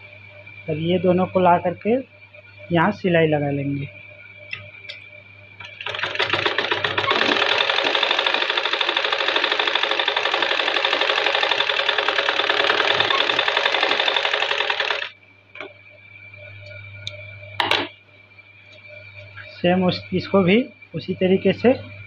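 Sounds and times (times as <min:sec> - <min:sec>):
sewing machine stitching: 0:05.6 - 0:15.1.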